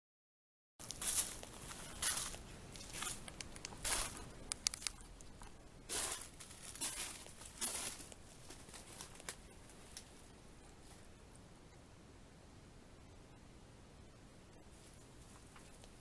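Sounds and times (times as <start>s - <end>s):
footsteps crunching over snow: 0.8s - 4.4s, 5.9s - 10.0s
sharp cracks: 2.9s - 7.4s.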